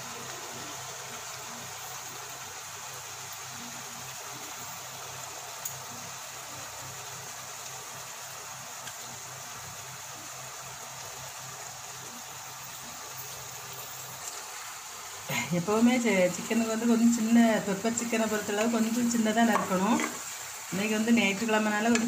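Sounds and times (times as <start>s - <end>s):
chicken sizzling in pan: 0.0s - 22.0s.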